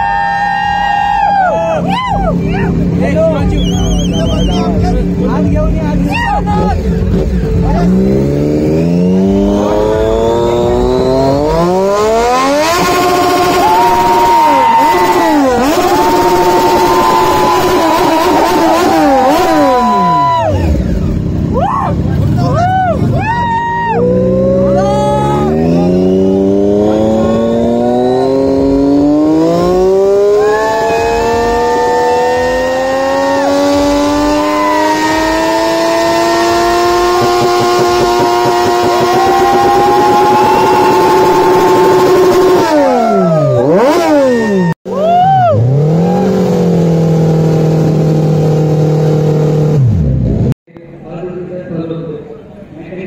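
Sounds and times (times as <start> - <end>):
motorcycle tyre burnout: 0.0 - 50.5
motorcycle engine revving: 2.1 - 23.2, 24.0 - 44.8, 45.6 - 50.6.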